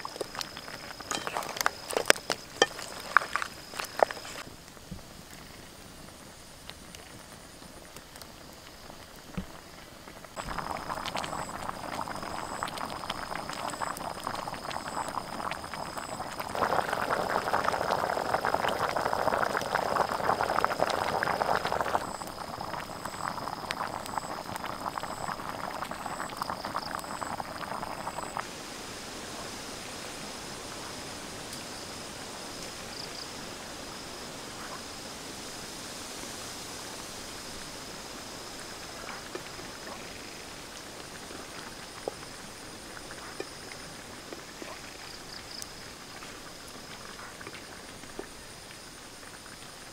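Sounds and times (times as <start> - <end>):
curry bubbling in a pan: 0.0 - 4.5, 6.1 - 29.6, 36.5 - 49.9
wood fire crackling: 0.0 - 29.0, 37.1 - 49.9.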